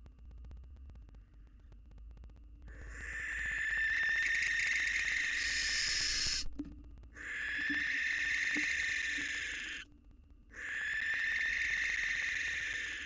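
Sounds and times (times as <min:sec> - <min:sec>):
owl rasping screeches: 0:02.8 - 0:06.5, 0:07.2 - 0:09.8, 0:10.5 - 0:13.0.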